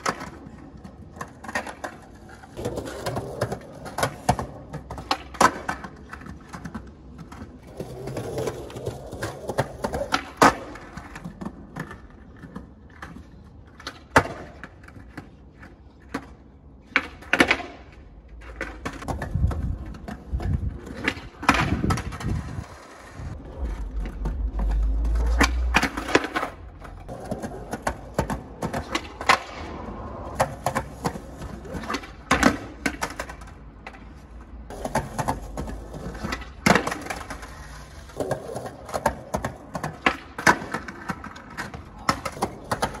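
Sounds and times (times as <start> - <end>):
skateboard clacks: 0.0 - 43.0
skateboard wheels rolling: 0.0 - 43.0
low rumbling: 21.8 - 27.1.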